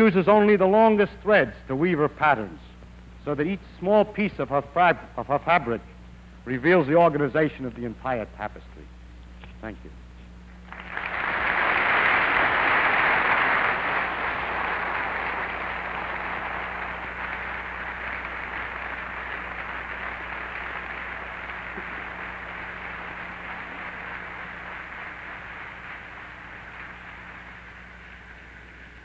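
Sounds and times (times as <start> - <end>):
large audience applauding: 10.6 - 29.0.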